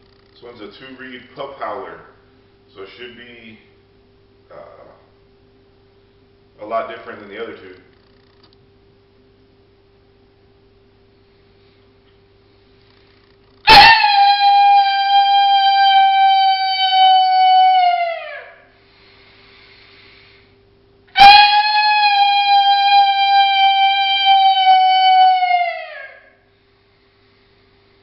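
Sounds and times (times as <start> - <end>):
coyote howler call: 13.6 - 18.8, 21.1 - 26.4.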